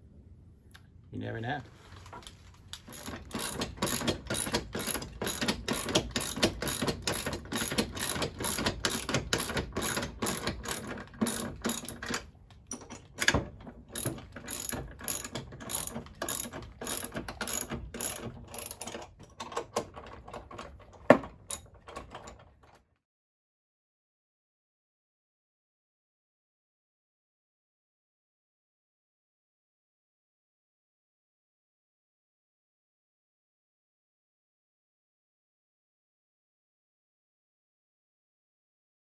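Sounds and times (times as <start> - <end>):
socket wrench ratchet clicking: 2.8 - 19.0, 21.5 - 21.7.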